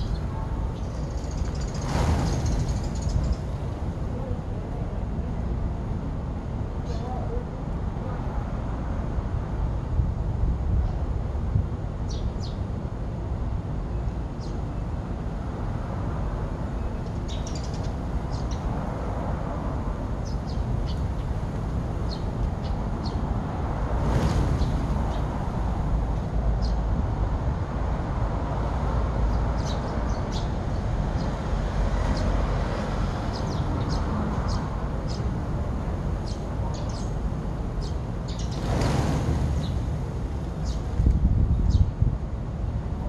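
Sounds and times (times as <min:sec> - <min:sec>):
sparrows chirping: 0:00.0 - 0:04.3, 0:14.0 - 0:14.8, 0:16.7 - 0:18.8, 0:20.2 - 0:21.4, 0:22.0 - 0:23.3, 0:26.6 - 0:26.8, 0:29.3 - 0:35.4, 0:36.1 - 0:37.2, 0:37.8 - 0:38.8, 0:40.6 - 0:40.9, 0:41.5 - 0:41.9.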